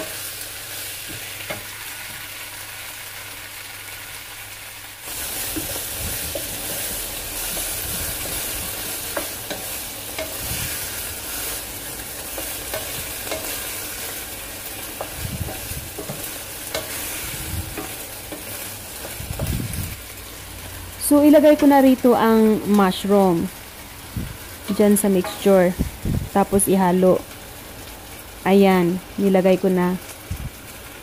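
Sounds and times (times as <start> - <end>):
food sizzling in a wok: 0.0 - 31.0
spatula scraping and knocking pan: 12.2 - 19.6, 24.7 - 25.7.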